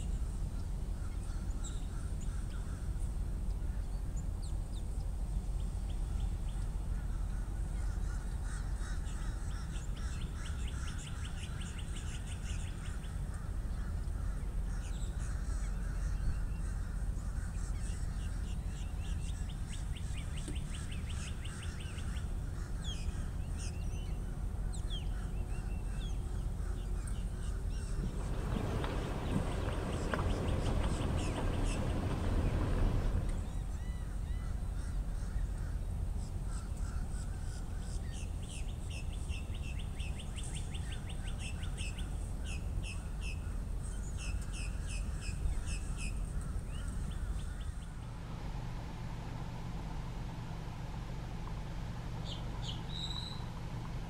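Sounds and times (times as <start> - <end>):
wild birds calling and trilling: 0.0 - 48.1, 51.4 - 54.0
low rumble: 25.4 - 34.9.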